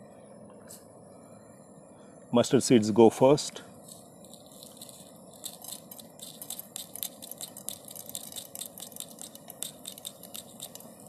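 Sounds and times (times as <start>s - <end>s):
mustard seeds popping in hot oil: 3.9s - 11.0s.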